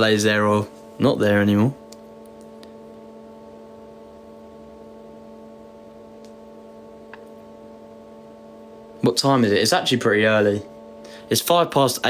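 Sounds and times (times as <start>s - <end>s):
steady tonal hum: 0.0s - 12.0s.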